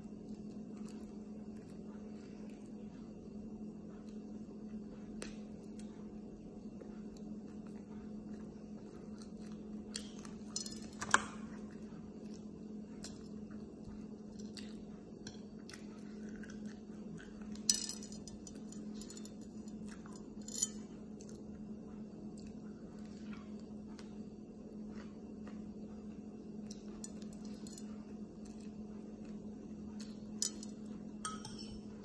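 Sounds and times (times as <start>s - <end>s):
chewing: 0.0s - 3.2s, 6.8s - 10.6s, 11.3s - 17.7s
low hum: 0.0s - 32.0s
fork clinking on plate: 31.2s - 31.9s.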